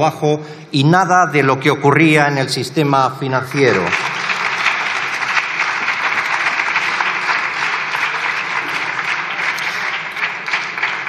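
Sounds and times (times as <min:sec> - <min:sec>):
dense hand clapping: 0:03.6 - 0:11.0.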